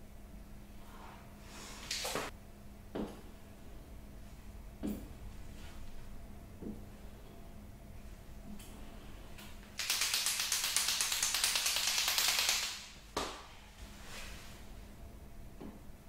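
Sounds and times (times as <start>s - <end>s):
marker ball rattling: 9.8s - 12.8s.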